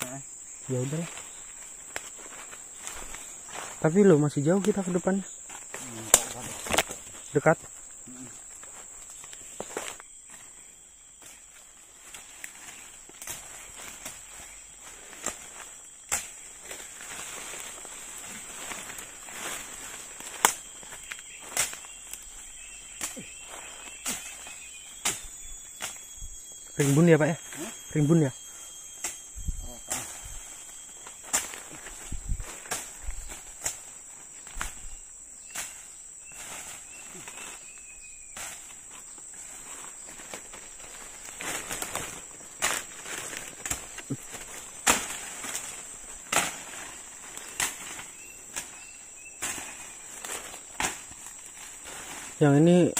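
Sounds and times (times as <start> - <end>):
high insect buzz: 0.0 - 52.9
footsteps through undergrowth: 0.5 - 52.9
twigs snapping: 5.5 - 7.2, 12.0 - 26.0, 31.0 - 34.9, 40.2 - 48.8, 49.4 - 51.6.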